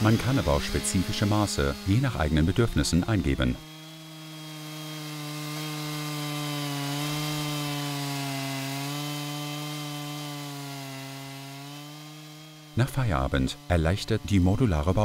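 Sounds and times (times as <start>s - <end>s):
chainsaw cutting through log: 0.0s - 15.0s.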